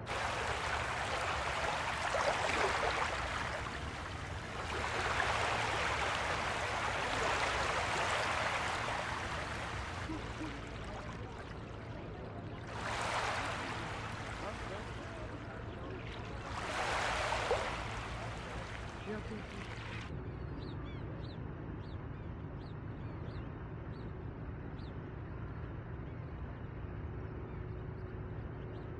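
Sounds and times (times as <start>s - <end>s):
small waves lapping: 0.0s - 20.1s.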